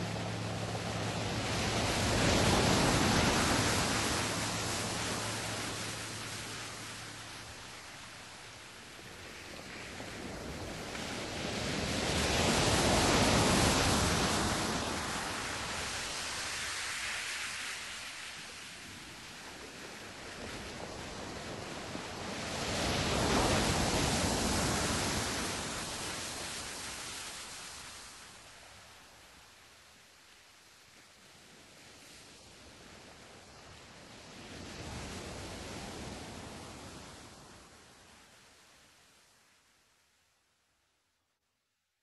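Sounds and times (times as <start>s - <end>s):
rushing noise like waves: 0.0s - 39.6s.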